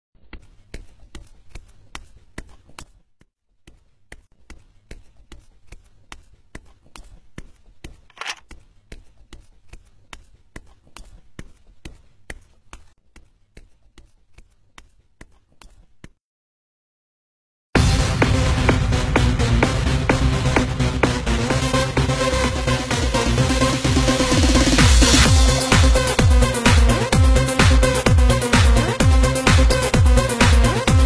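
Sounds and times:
light tapping footsteps: 0.3s - 16.2s.

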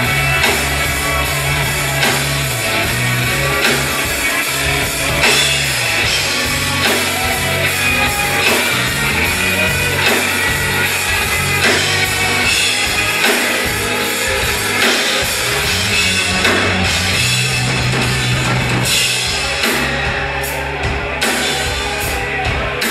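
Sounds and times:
live rock band playing: 0.0s - 22.9s.

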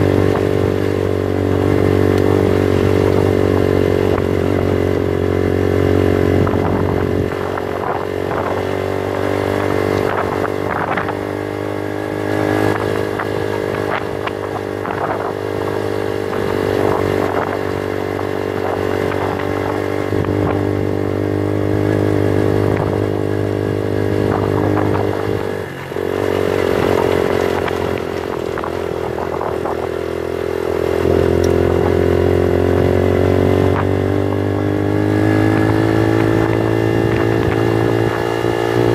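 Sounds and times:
motorcycle engine running: 0.0s - 38.9s
stones clattering under tyres: 26.0s - 29.0s.

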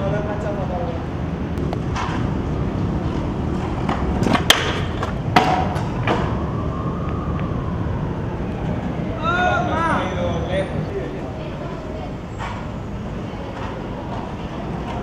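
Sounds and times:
scooter wheels rolling on hard ground: 1.6s - 7.5s, 11.2s - 15.0s
scooter clacking on ground: 3.1s - 6.3s.

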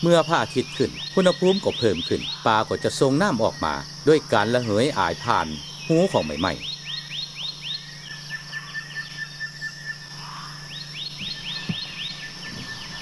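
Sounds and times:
high insect drone: 0.0s - 13.0s
soft low thump: 11.2s - 11.9s.

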